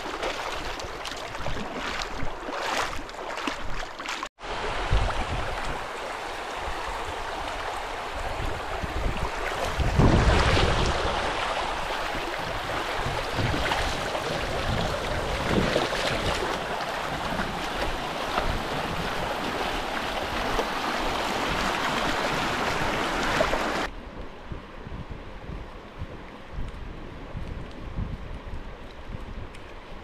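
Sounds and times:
rushing river water: 0.0s - 23.9s.

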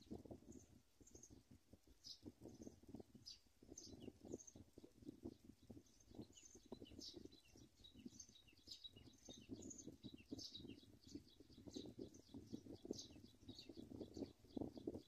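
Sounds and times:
nestlings chirping: 2.0s - 15.0s.

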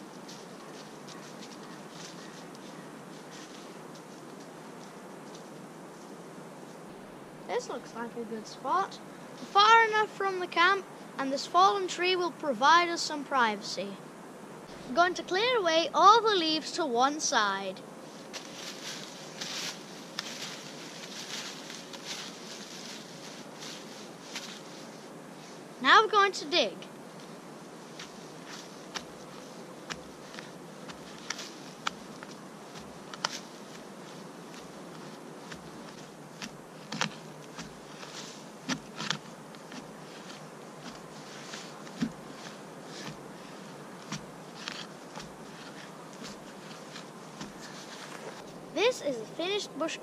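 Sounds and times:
dry leaves rustling: 0.0s - 10.1s, 17.3s - 26.0s, 26.7s - 49.9s
stick scraping into soil: 27.9s - 48.6s.

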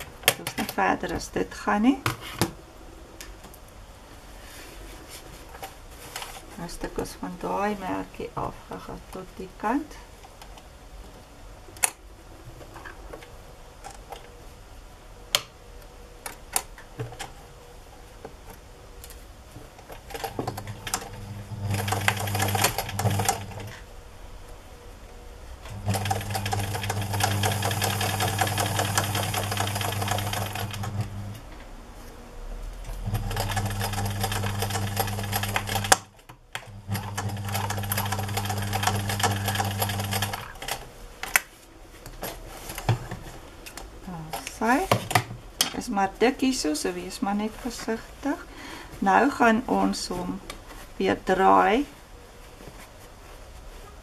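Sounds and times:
sewing machine stitching: 20.1s - 23.8s, 25.7s - 31.1s, 32.9s - 40.8s.

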